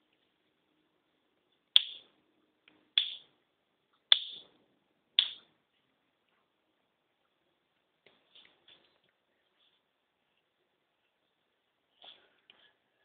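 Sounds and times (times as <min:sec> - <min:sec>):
finger snaps: 0:01.8 - 0:02.1, 0:05.2 - 0:05.5.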